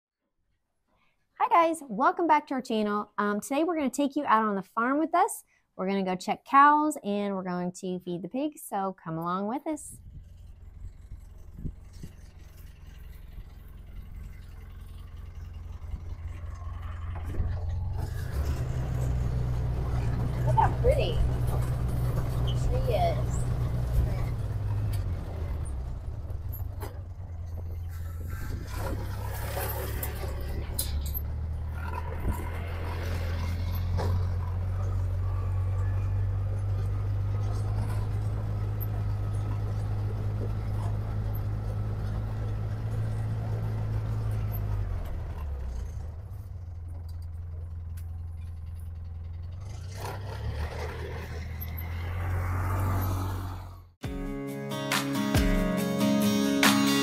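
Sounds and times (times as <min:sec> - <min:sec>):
vehicle driving rumble: 0:09.9 - 0:54.0.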